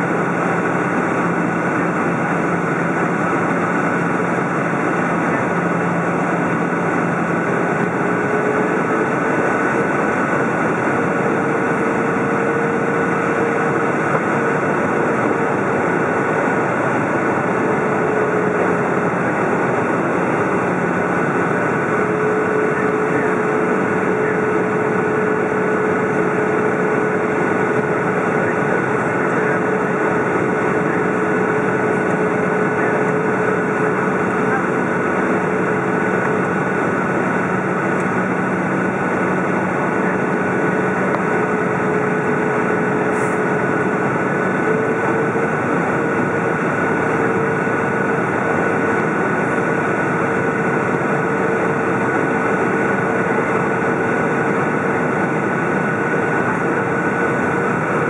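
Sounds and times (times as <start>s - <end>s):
airplane cabin roar: 0.0s - 58.0s
faint engine hums: 0.0s - 58.0s.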